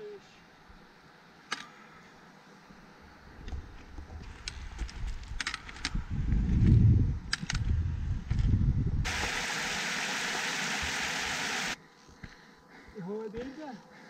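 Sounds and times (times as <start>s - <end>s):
wind rumble on microphone: 3.4s - 9.1s
waterfall splashing on rock: 9.1s - 11.8s.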